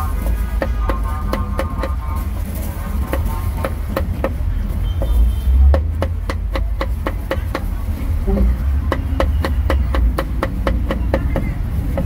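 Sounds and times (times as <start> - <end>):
cleaver chopping on wooden block: 5.7 - 7.7, 8.4 - 12.0.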